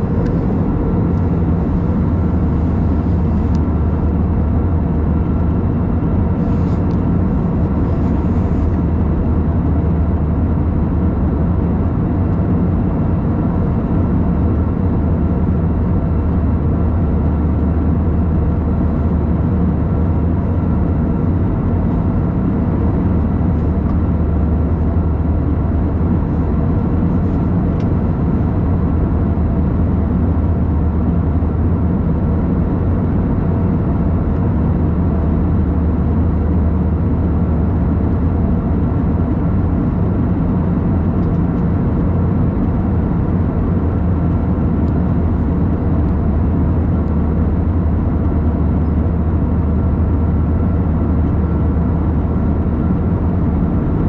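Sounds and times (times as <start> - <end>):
faint steady hums: 0.0 - 11.0
airplane cabin engine drone: 0.0 - 54.0.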